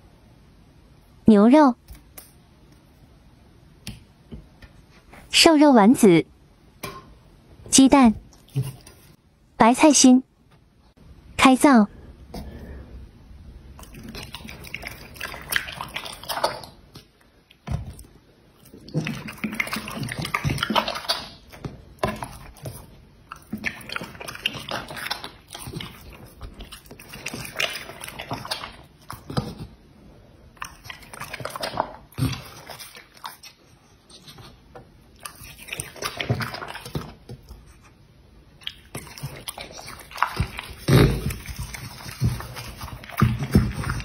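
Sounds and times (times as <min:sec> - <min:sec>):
dog chewing and swallowing: 0:13.8 - 0:29.8, 0:30.5 - 0:37.8, 0:38.6 - 0:44.0.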